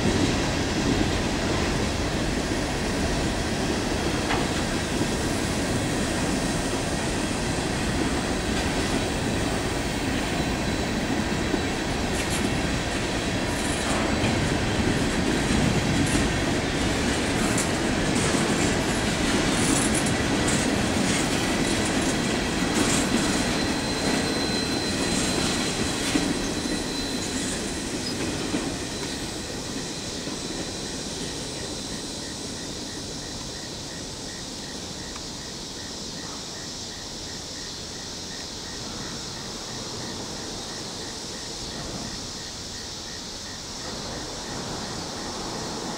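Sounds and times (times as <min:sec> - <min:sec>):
train wheels rumbling on track: 0:00.0 - 0:45.9
wheel squeal: 0:22.8 - 0:32.7.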